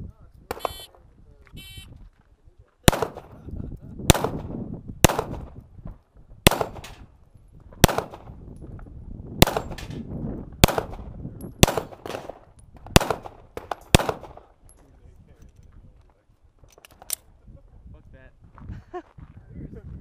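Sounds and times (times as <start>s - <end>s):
pistol shots with echo: 0.5s - 0.8s, 2.8s - 3.4s, 4.0s - 5.6s, 6.4s - 7.1s, 7.8s - 8.4s, 9.4s - 10.0s, 10.6s - 14.6s.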